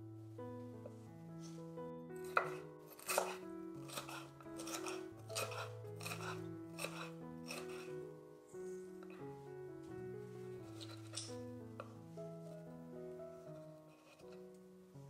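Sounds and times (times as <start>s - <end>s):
background music: 0.0s - 15.0s
knife cutting on wooden board: 2.2s - 7.9s.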